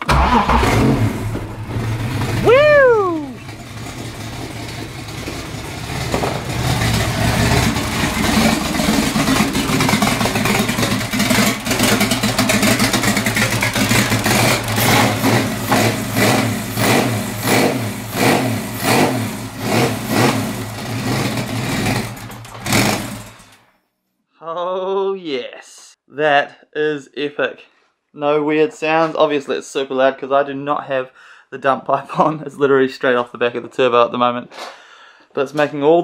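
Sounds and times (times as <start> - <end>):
loud car engine running: 0.0 - 23.6.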